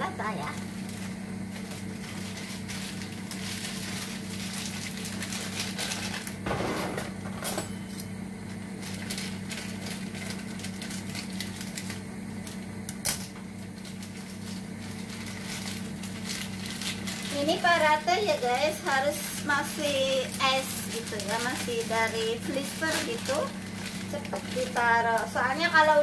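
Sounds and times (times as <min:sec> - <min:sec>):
steady low hum: 0:00.0 - 0:26.0
plastic packaging crinkling: 0:00.2 - 0:06.4, 0:08.5 - 0:12.6, 0:13.5 - 0:26.0.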